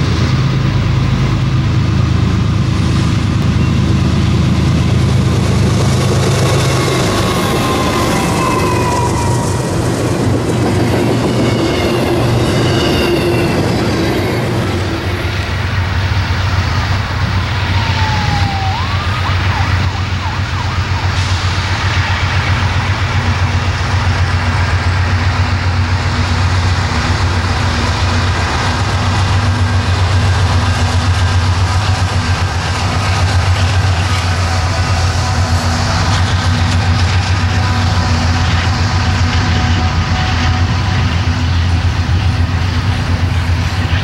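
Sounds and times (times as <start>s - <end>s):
diesel locomotives passing: 0.0s - 44.0s.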